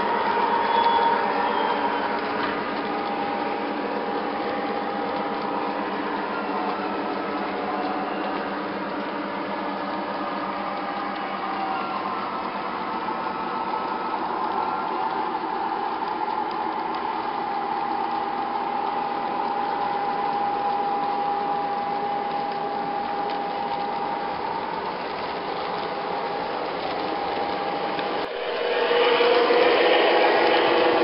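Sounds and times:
high whine: 28.2 - 31.0.

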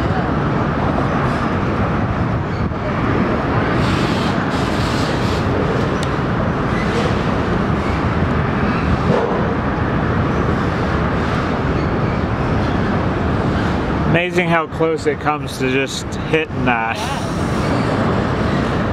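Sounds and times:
freight train wheels rumbling on bridge: 0.0 - 14.1.

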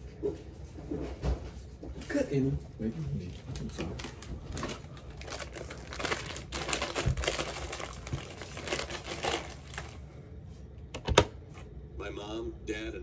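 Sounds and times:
crinkling and rustling: 3.0 - 10.0.

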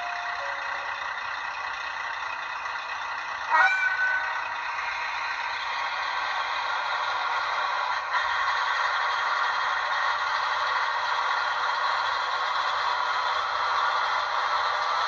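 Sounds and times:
model train idling engine sound: 0.0 - 15.0.

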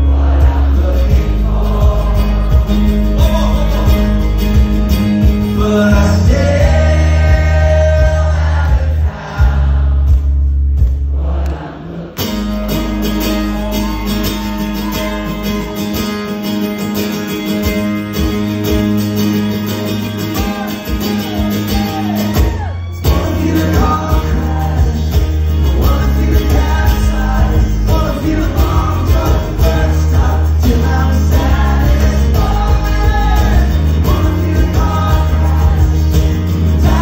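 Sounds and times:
man singing: 0.0 - 4.6, 5.2 - 9.6, 23.0 - 37.0
acoustic guitar strumming: 0.0 - 37.0.

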